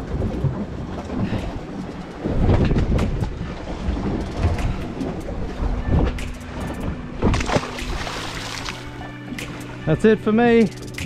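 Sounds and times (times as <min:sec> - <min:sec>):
wind rumble: 0:00.0 - 0:09.0
boat on choppy water: 0:00.0 - 0:11.0.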